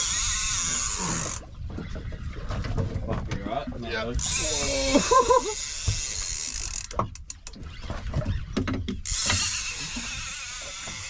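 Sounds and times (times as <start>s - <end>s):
fishing reel clicking: 0.0s - 1.4s, 4.2s - 7.6s, 9.0s - 11.0s
fishing reel whirring: 0.0s - 1.5s, 4.2s - 7.9s, 9.0s - 11.0s.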